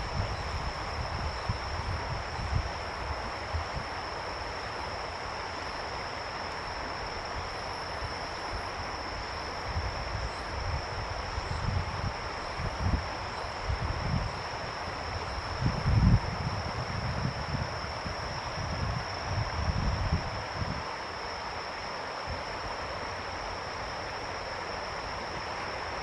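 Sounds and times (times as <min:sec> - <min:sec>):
wind gusts buffeting microphone: 0:00.0 - 0:04.1, 0:09.6 - 0:21.0
even hiss: 0:00.0 - 0:26.0
high-pitched insect trill: 0:00.0 - 0:26.0.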